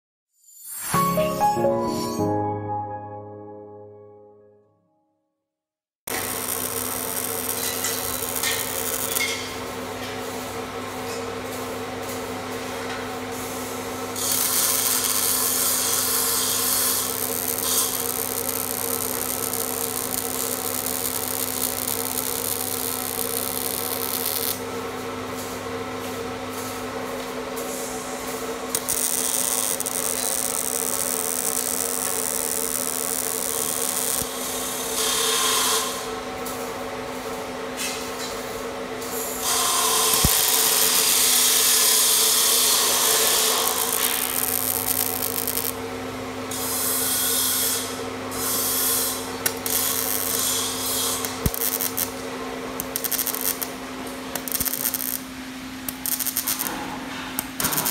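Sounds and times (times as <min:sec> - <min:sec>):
welding arc crackling hiss: 0:06.1 - 0:09.6, 0:14.1 - 0:24.6, 0:28.7 - 0:36.1, 0:39.1 - 0:45.8, 0:46.5 - 0:56.8, 0:57.4 - 0:57.9.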